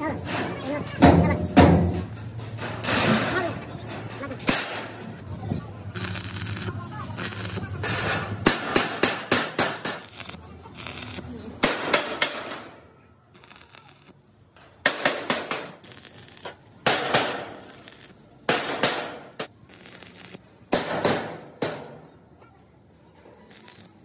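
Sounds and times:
hammer striking steel sheet: 7.2s - 10.3s, 11.6s - 12.8s, 14.8s - 15.8s, 18.5s - 19.5s.

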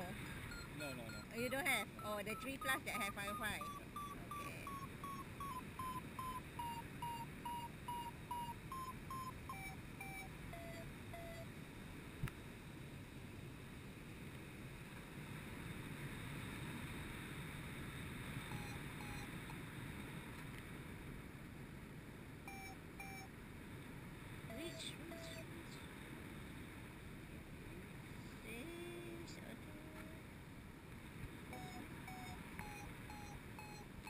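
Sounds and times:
variometer beeping: 0.3s - 11.5s, 18.5s - 19.6s, 22.5s - 23.3s, 24.5s - 25.5s, 31.5s - 34.0s.

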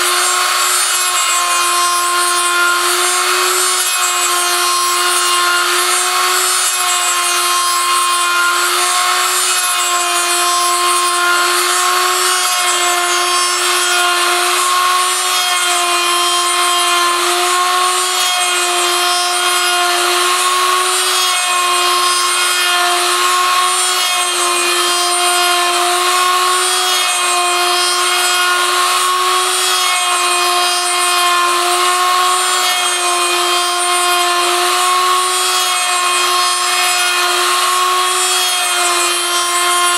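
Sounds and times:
milling machine motor whine: 0.0s - 39.9s.

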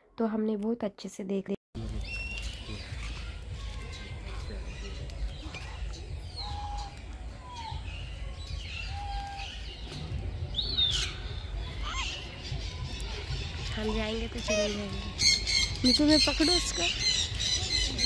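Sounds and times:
birds chirping and whistling: 1.8s - 18.0s
rising and falling bird call: 4.8s - 12.6s.

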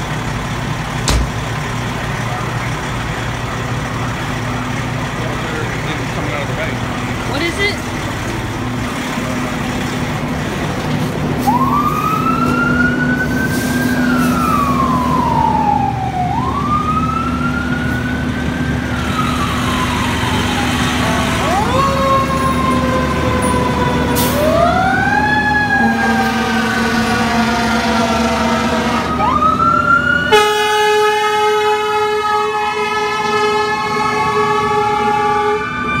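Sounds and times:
truck engine running: 0.0s - 30.0s
fire engine siren wailing: 0.0s - 36.0s
truck horn blasts: 25.9s - 29.1s, 30.3s - 35.7s.

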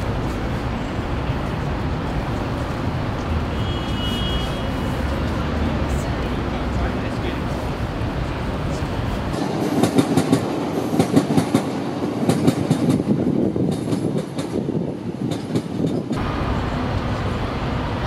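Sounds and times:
train rumble: 0.0s - 18.0s
train wheels clacking on rail joints: 9.3s - 16.2s.

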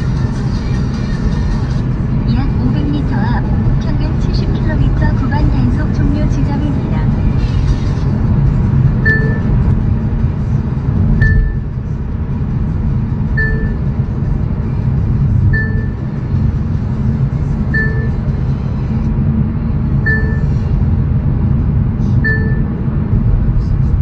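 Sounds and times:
car engine and tyres rumbling: 0.0s - 24.0s
short high beep: 9.1s - 9.5s, 11.2s - 11.7s, 13.4s - 13.8s, 15.6s - 16.0s, 17.8s - 18.2s, 20.1s - 20.6s, 22.3s - 22.8s.

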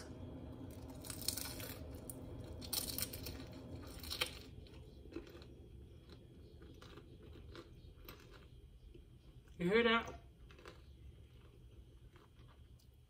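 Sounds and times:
egg roll wrapper crunching: 0.7s - 8.6s, 10.4s - 12.9s
chewing crunchy food: 0.7s - 13.0s.

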